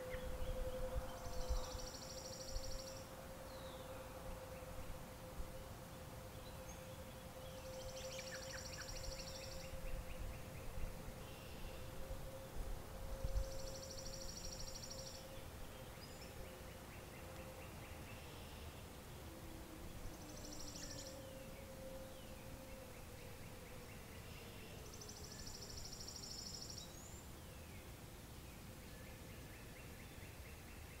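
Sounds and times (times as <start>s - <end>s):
distant warning sirens: 0.0s - 27.4s
songbirds trilling: 5.9s - 12.1s, 13.0s - 27.9s.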